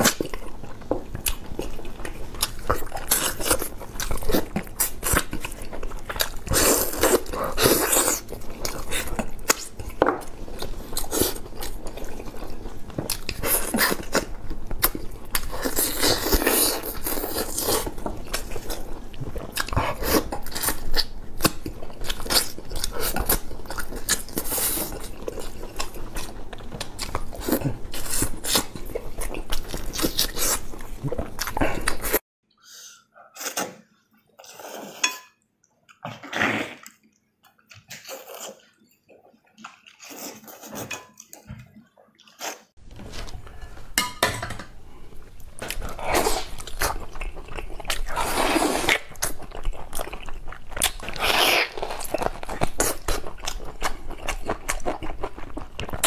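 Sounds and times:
person chewing and biting: 0:00.0 - 0:32.2, 0:45.5 - 0:56.0.

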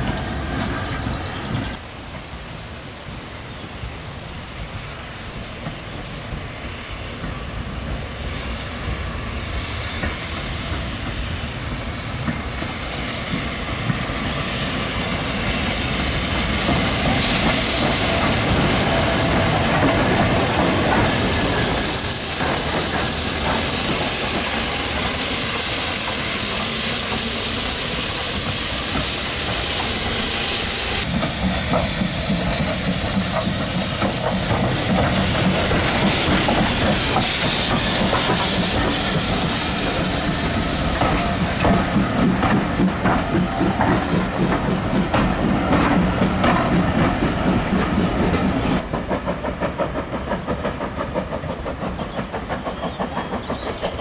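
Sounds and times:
steam locomotive hissing: 0:00.0 - 0:54.0
wheels clicking on rails: 0:31.0 - 0:54.0.

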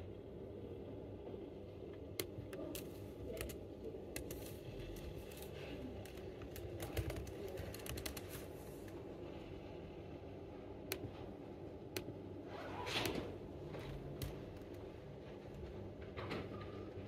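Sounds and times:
low room hum: 0:00.0 - 0:17.0
laptop keyboard typing: 0:02.1 - 0:08.6.

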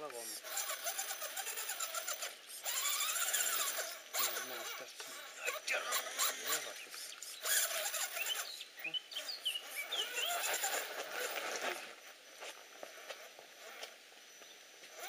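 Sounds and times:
bird chirps: 0:05.4 - 0:10.9.

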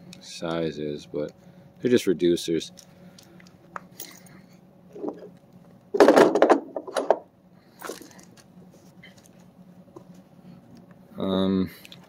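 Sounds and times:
tools clattering on table: 0:06.0 - 0:07.2.

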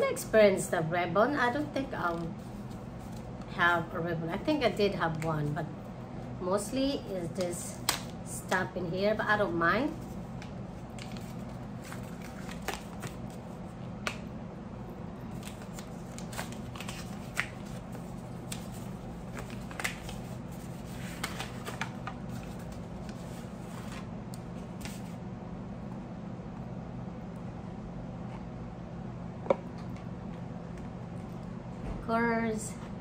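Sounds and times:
paper wrapping crinkling: 0:10.8 - 0:13.5, 0:15.3 - 0:24.0.

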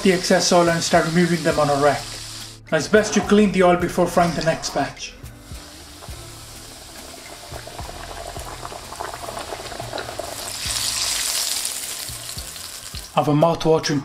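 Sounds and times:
chicken frying in hot oil: 0:00.0 - 0:02.5, 0:05.5 - 0:13.2.

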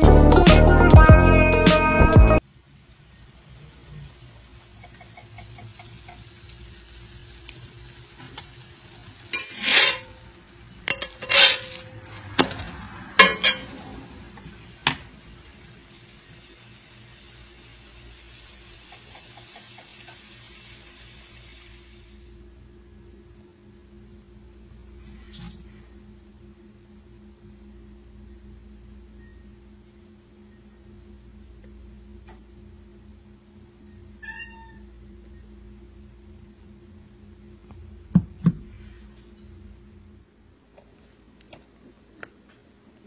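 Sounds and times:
pancake sizzling in oil: 0:02.4 - 0:22.4
utensil scraping and knocking pan: 0:09.3 - 0:10.2, 0:10.9 - 0:12.6, 0:13.2 - 0:13.7.

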